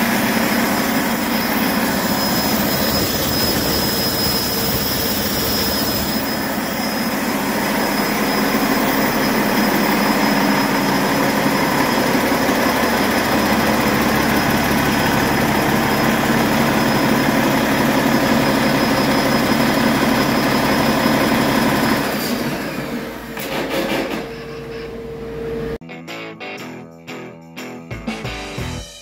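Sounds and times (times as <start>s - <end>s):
diesel engine running: 0.0s - 23.4s.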